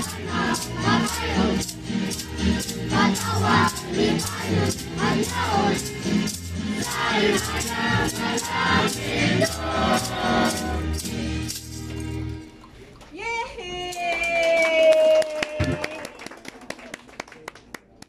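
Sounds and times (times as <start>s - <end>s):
children's choir singing: 0.0s - 11.0s
repeating bass line: 0.0s - 11.7s.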